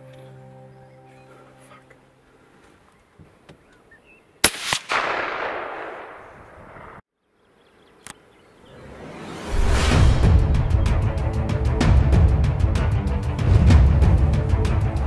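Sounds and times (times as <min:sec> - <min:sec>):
rifle shot with echo: 0:04.4 - 0:07.0
sharp crack: 0:04.4 - 0:07.0.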